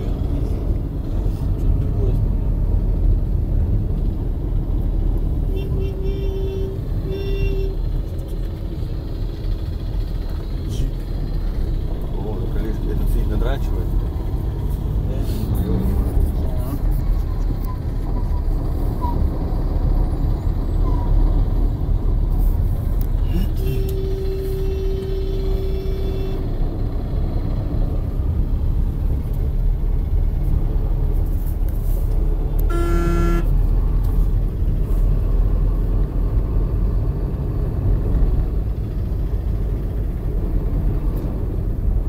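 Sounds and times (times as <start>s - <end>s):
car road and engine rumble: 0.0s - 42.0s
short horn honk: 5.5s - 7.8s, 23.3s - 26.5s, 32.6s - 33.6s
vehicle horn held note: 23.6s - 26.4s, 32.6s - 33.6s.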